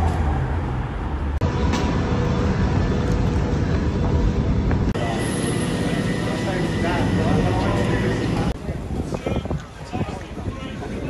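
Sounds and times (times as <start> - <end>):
underground train rumble: 0.0 - 11.0.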